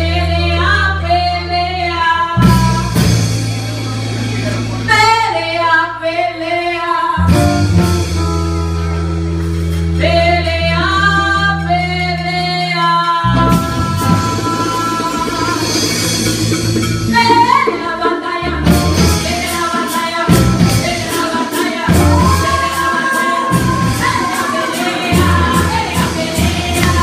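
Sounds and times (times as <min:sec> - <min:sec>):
woman singing: 0:00.0 - 0:03.2, 0:04.9 - 0:07.6, 0:10.0 - 0:16.0, 0:17.1 - 0:27.0
bass notes: 0:00.0 - 0:27.0
drum and cymbal hits: 0:02.4 - 0:05.4, 0:13.3 - 0:27.0.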